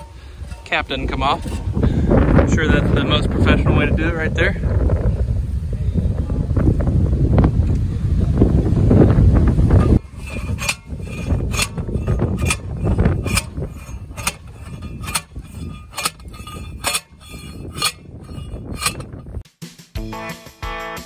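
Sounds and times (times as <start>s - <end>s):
post driver clanging on metal: 0.0s - 1.8s, 9.8s - 19.4s.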